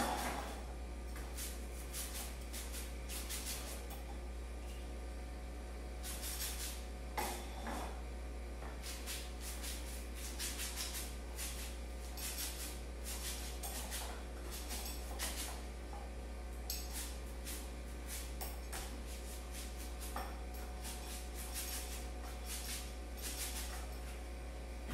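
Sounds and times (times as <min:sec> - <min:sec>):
steady low hum: 0:00.0 - 0:24.9
paint brush swishing on wall: 0:01.2 - 0:03.9, 0:06.0 - 0:06.9, 0:08.7 - 0:15.7, 0:16.8 - 0:24.3.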